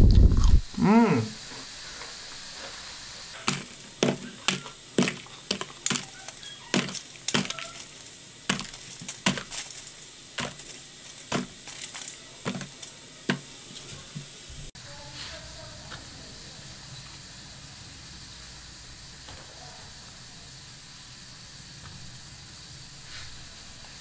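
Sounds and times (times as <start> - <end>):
fried food tapping into paper box: 3.4 - 6.1, 6.7 - 7.8, 8.5 - 9.8, 10.4 - 13.5.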